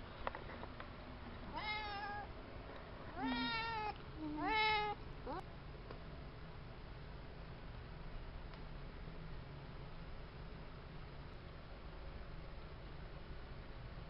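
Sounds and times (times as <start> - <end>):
cat meowing: 1.5 - 2.3, 3.1 - 5.4.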